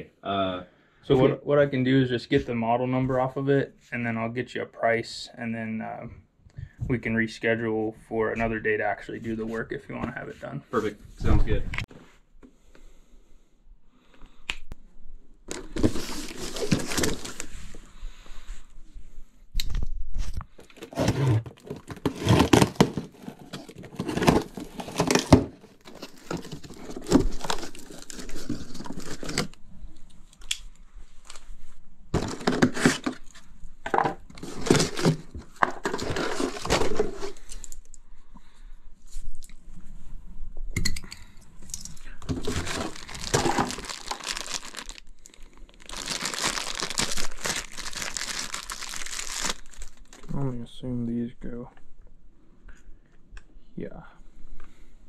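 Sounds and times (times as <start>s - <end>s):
cardboard rustling and tearing: 15.5s - 17.5s, 20.6s - 29.6s, 32.2s - 33.4s, 34.3s - 37.5s, 42.3s - 45.1s, 45.8s - 50.2s.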